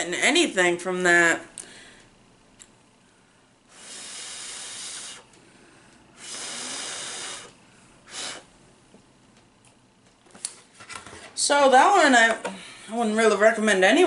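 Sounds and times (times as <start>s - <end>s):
vapour exhaling hiss: 3.7s - 5.4s, 6.1s - 8.5s
short puff: 6.2s - 7.5s, 8.1s - 8.5s.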